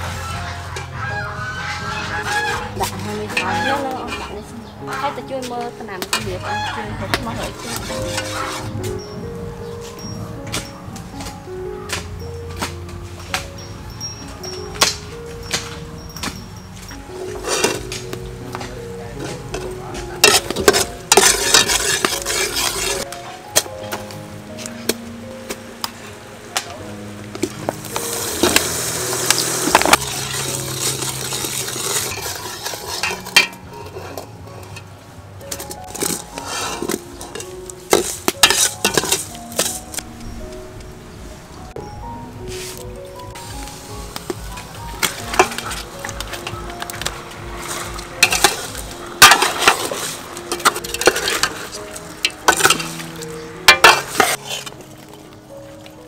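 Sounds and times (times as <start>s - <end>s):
metal ladle scraping a pot: 0.0s - 5.4s, 6.0s - 9.1s, 14.1s - 23.7s, 27.9s - 34.9s, 35.5s - 39.9s, 44.6s - 55.2s
ladle clinking against pot: 13.3s - 23.0s, 35.5s - 39.8s, 47.9s - 54.7s
sauce bubbling and sizzling: 27.1s - 33.6s.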